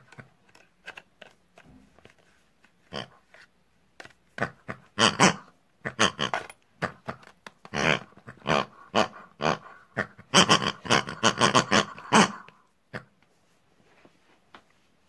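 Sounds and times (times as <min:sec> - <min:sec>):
person making pig-like calls: 0:04.4 - 0:13.1.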